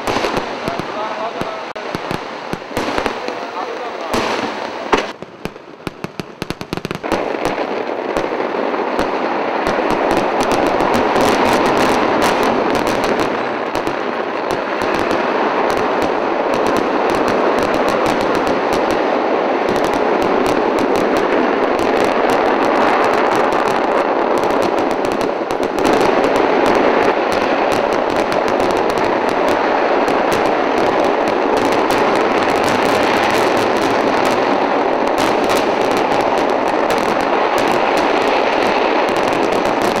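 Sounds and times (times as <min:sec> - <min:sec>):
firecracker bangs and shell bursts: 0:00.0 - 0:05.5.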